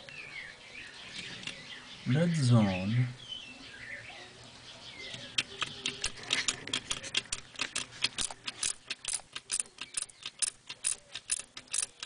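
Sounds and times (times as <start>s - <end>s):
rapid sharp clicks: 5.2s - 12.0s.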